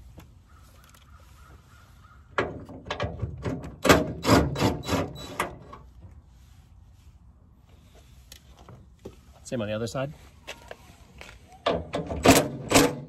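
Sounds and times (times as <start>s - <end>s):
power driver rattling bursts: 3.4s - 5.7s.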